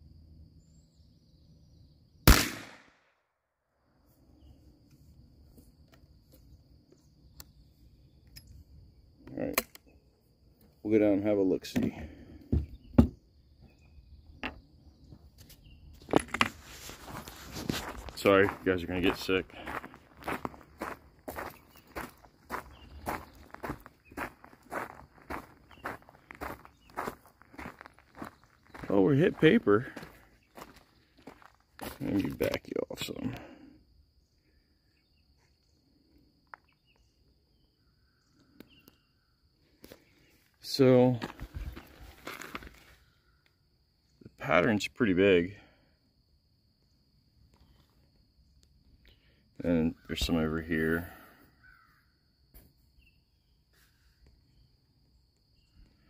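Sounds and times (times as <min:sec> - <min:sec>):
high insect drone: 0:04.0 - 0:56.0
footsteps on gravel: 0:16.0 - 0:32.6, 0:41.1 - 0:43.0.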